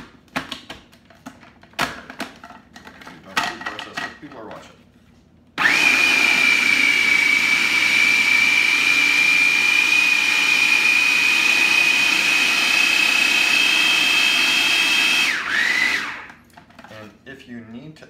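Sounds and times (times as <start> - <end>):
food processor motor whine: 5.6 - 16.4
churning of food mix: 5.6 - 16.6.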